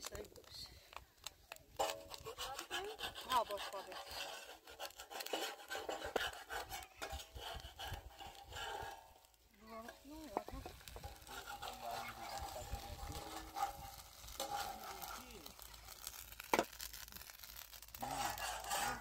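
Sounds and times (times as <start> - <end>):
metal spatula scraping a griddle: 1.8 - 19.0
faint sizzling: 5.3 - 19.0.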